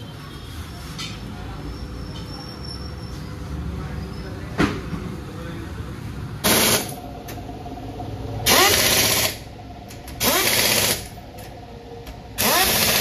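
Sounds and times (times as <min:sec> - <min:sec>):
pneumatic impact wrench bursts: 0:06.4 - 0:07.0, 0:08.4 - 0:09.4, 0:10.2 - 0:11.1, 0:12.4 - 0:13.0.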